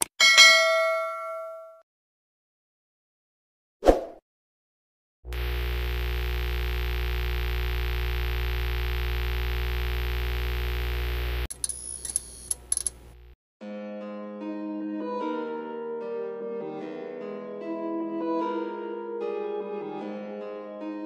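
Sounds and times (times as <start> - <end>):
electric buzzing hum with heavy bass: 5.3 - 11.5, 12.6 - 13.4.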